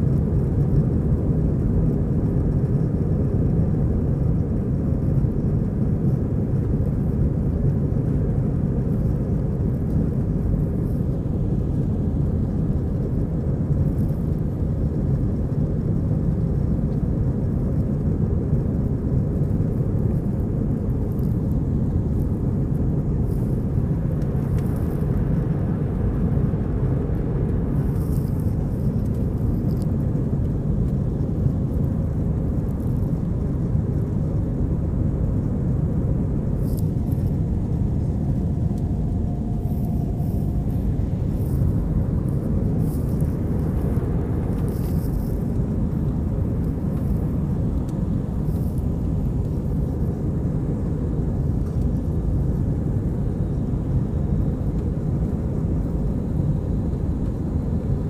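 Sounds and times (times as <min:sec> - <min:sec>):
jet engines rumbling: 0:00.0 - 0:58.0
rushing air: 0:35.5 - 0:51.9.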